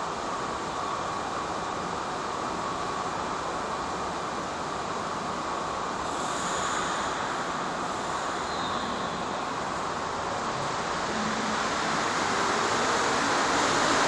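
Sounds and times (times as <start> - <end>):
metro train rushing noise: 0.0 - 14.0.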